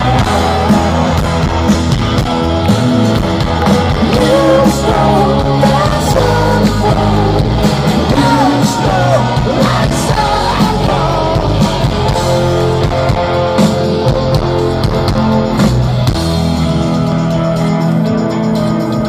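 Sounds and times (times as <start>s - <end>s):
person singing: 0.0s - 1.8s, 4.0s - 12.5s
drums: 0.0s - 19.0s
electric guitar: 0.0s - 19.0s.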